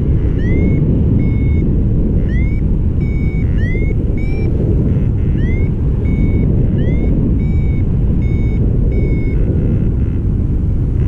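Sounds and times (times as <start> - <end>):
wind rush over microphone: 0.0 - 11.0
short high beeps: 0.2 - 1.6, 2.3 - 9.4.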